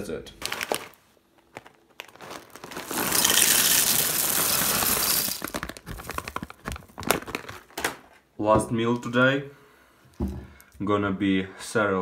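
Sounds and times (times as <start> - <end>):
cereal pouring into a bowl: 2.0 - 6.4.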